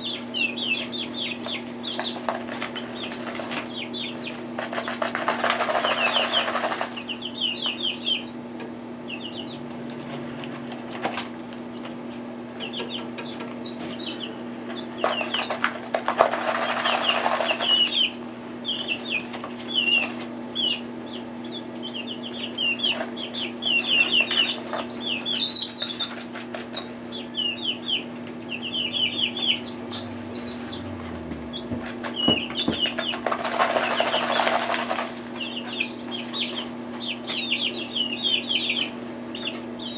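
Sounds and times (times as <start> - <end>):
chicks peeping: 0.0 - 39.9
wings flapping and dirt flicking: 1.9 - 3.8, 4.6 - 7.2, 15.0 - 18.1, 31.3 - 36.7.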